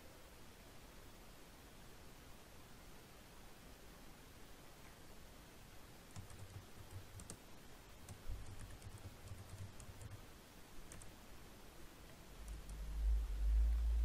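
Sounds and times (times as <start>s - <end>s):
computer keyboard typing: 6.1s - 10.2s, 10.8s - 11.1s, 12.4s - 12.8s.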